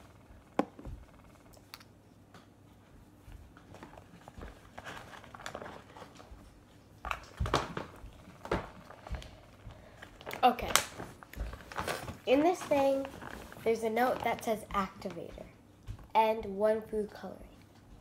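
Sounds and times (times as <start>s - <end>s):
paper bag rustling: 3.8s - 6.4s.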